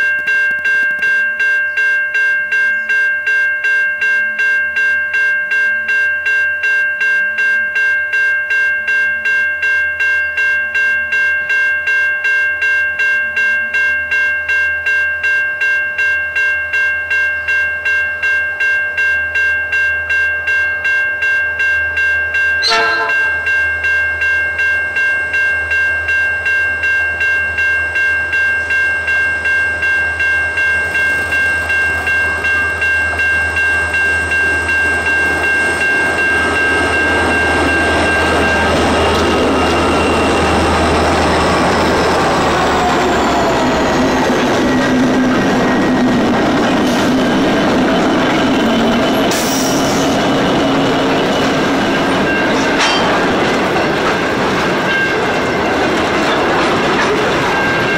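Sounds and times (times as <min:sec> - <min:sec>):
level crossing warning bell: 0:00.0 - 0:57.9
diesel locomotives passing: 0:22.5 - 0:25.0, 0:25.6 - 0:57.9.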